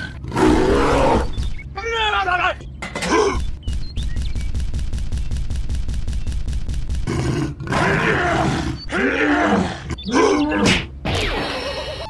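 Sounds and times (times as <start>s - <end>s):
dinosaur growling roars: 0.0s - 1.3s, 7.1s - 10.5s
rapid clicking clatter: 3.7s - 7.1s.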